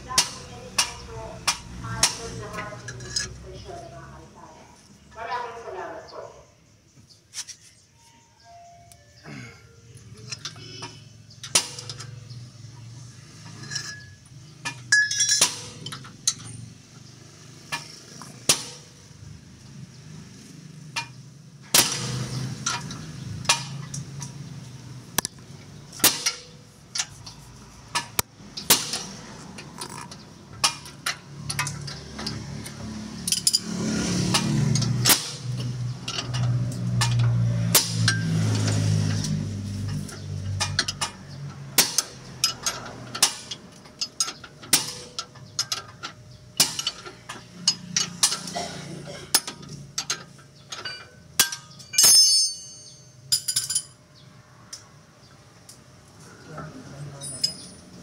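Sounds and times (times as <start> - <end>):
metal tools knocking on steel: 13.4 - 16.6, 35.6 - 54.0, 57.2 - 58.0.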